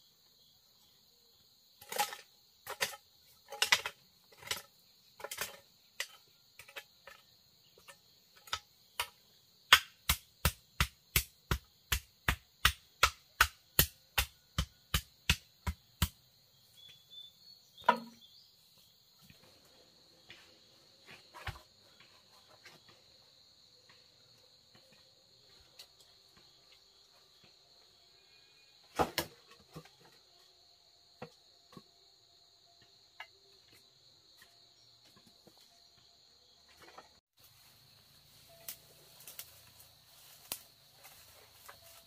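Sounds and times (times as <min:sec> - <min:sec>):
insects droning: 0:00.0 - 0:42.0.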